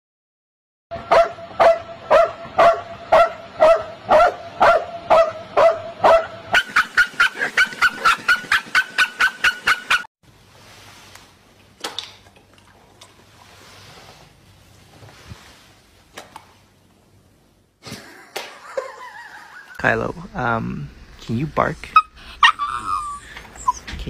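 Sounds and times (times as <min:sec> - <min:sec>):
dog barking: 0:01.0 - 0:10.1.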